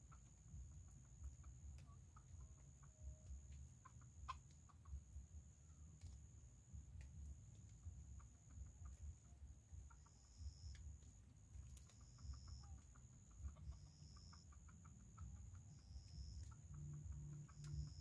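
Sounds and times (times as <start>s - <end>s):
chickens clucking softly: 0.0s - 6.2s, 7.5s - 18.0s
high-pitched whine: 15.2s - 18.0s.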